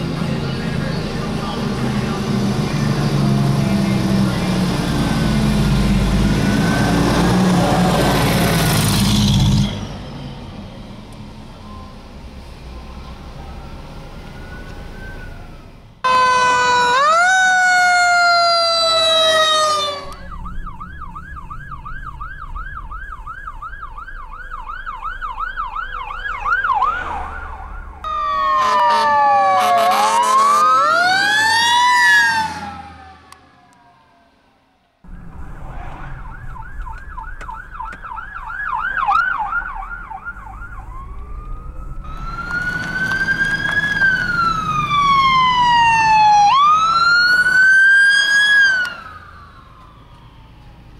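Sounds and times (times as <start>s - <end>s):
road and engine noise: 0.0s - 50.9s
siren wailing: 4.0s - 8.0s, 13.3s - 50.9s
siren yelping: 13.3s - 34.4s, 35.0s - 50.9s.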